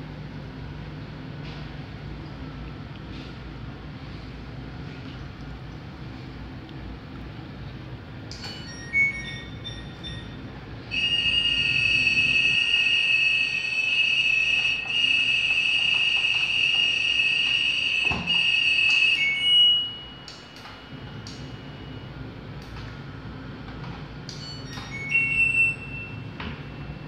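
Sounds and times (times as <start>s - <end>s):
steady high electronic tone: 8.8s - 22.1s.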